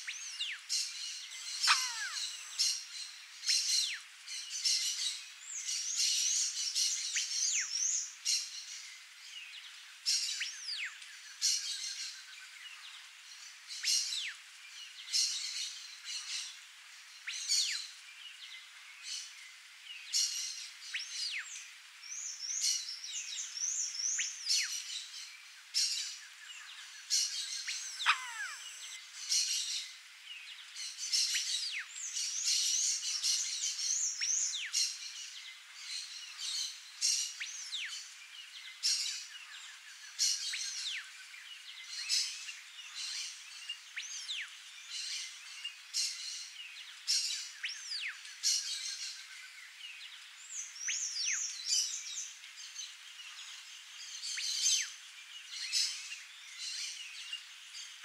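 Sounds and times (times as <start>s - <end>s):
small birds chirping: 0.0s - 58.0s
fast warbling bird trills: 1.6s - 2.2s, 28.0s - 28.8s.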